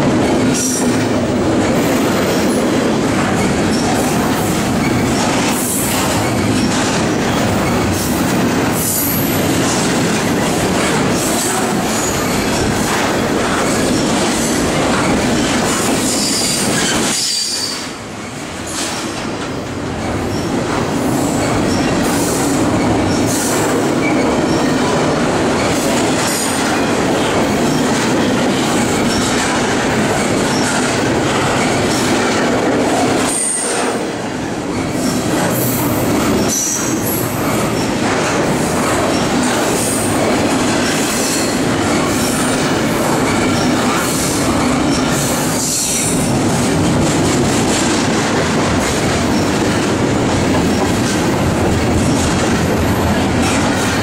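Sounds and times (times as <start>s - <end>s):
freight train wheels rumbling: 0.0s - 54.0s.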